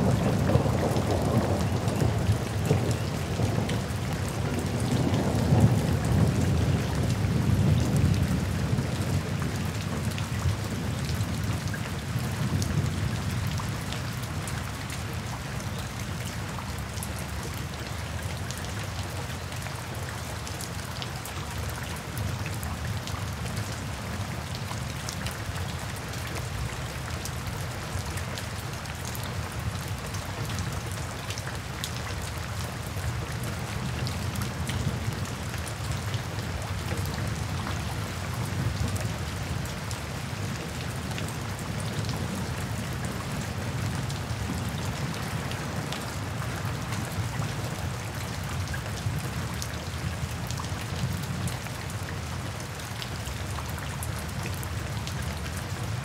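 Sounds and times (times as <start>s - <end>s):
distant thunder rumble: 0.0s - 9.1s
rain falling through trees: 0.0s - 56.0s.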